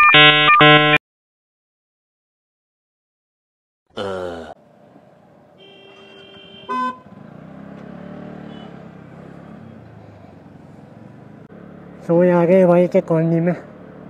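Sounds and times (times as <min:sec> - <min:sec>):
vehicle horns honking: 0:00.1 - 0:01.0, 0:05.6 - 0:07.2, 0:08.3 - 0:09.0
small engine pulling away: 0:07.0 - 0:12.1.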